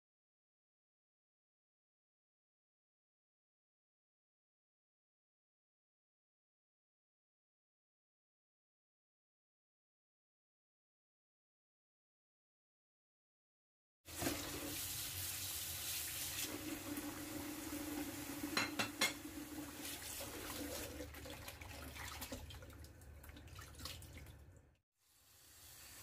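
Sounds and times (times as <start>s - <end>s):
tap water running into basin: 14.1s - 24.6s.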